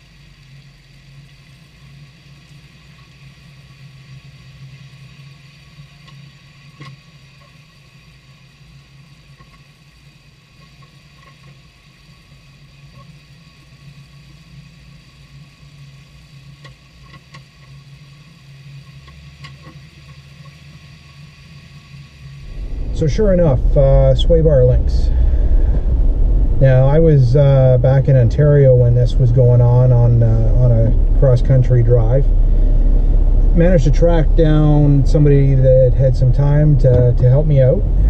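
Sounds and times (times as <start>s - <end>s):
car engine and tyres droning: 0.0s - 38.0s.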